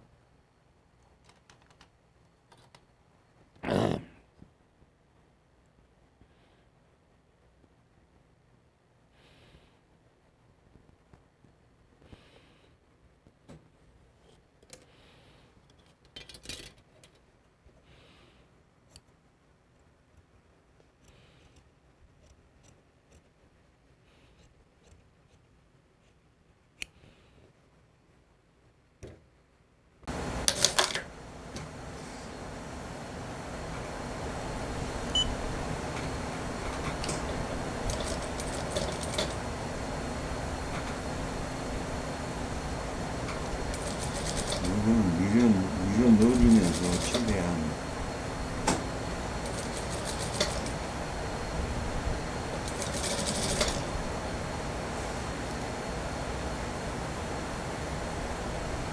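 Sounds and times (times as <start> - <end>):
steady background hum: 0.0 - 58.9
sewing machine stitching: 36.7 - 39.5, 43.3 - 44.8, 46.3 - 47.4, 49.4 - 50.8, 52.6 - 53.9
sewing machine clicks: 37.8 - 39.4, 43.7 - 44.7, 46.7 - 47.3, 49.4 - 50.8, 52.6 - 53.9
shears snipping fabric: 43.3 - 44.7, 49.4 - 50.8.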